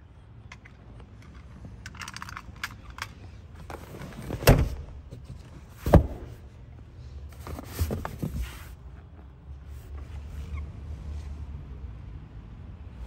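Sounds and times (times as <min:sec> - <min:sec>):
dull thumps: 0:04.4 - 0:06.5.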